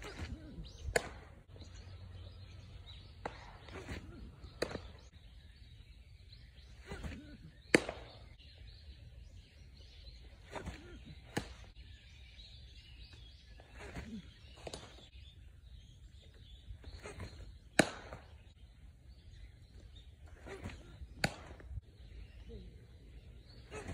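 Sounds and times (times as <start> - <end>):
baseballs smacking into target: 0.0 - 1.4, 3.1 - 5.1, 6.8 - 8.3, 10.5 - 11.7, 13.8 - 15.1, 17.0 - 18.4, 20.4 - 21.8
low outdoor background noise: 0.0 - 23.9.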